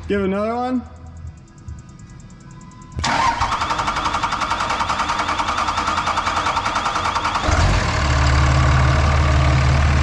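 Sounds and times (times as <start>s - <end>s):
diesel engine running: 3.0s - 10.0s
starter cranking diesel engine: 3.0s - 10.0s.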